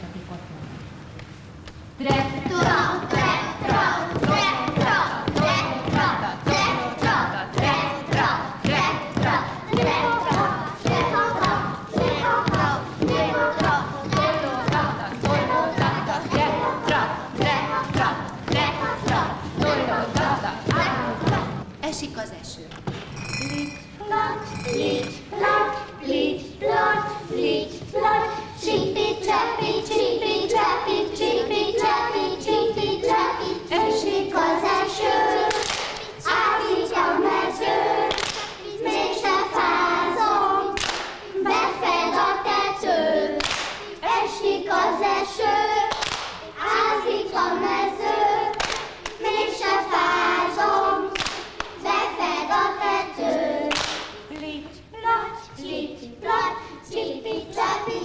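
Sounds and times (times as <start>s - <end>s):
children singing in unison: 2.0s - 21.7s, 24.0s - 58.0s
hands clapping: 35.5s - 36.1s, 38.1s - 38.6s, 40.8s - 41.2s, 43.4s - 43.9s, 45.9s - 46.4s, 48.5s - 49.3s, 51.1s - 51.8s, 53.7s - 54.2s.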